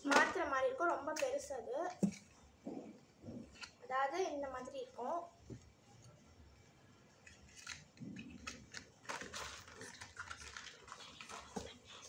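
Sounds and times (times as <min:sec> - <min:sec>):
cardboard packets rustling: 0:07.4 - 0:12.0.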